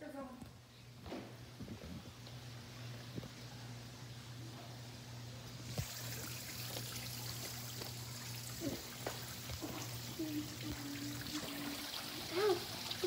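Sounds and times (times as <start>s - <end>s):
water trickling: 5.5s - 13.0s.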